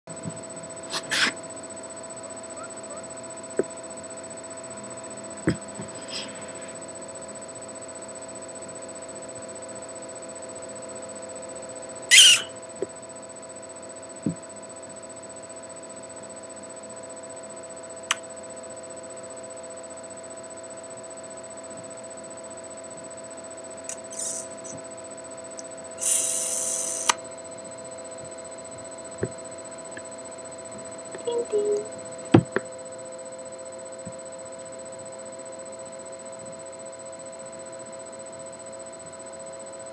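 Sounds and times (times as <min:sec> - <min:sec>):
electrical hum: 0:00.1 - 0:39.9
loud hissing burst: 0:24.1 - 0:24.5, 0:26.0 - 0:27.2.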